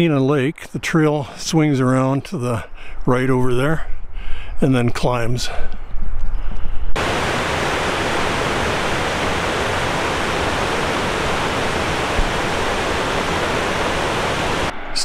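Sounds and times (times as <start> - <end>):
falling water rushing: 7.0 - 14.7.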